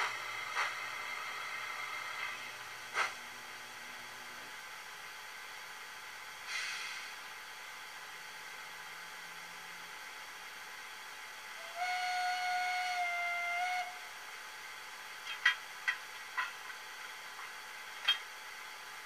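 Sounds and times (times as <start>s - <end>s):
steam hiss burst: 6.4s - 7.3s
steam whistle blast: 11.6s - 14.1s.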